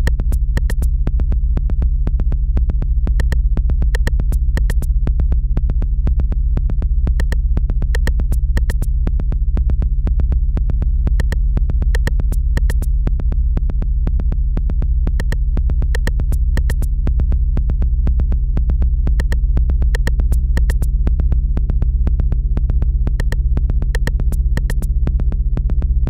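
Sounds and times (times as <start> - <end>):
low synthesizer drone: 0.0 - 26.0
sharp digital clicks: 16.0 - 16.9.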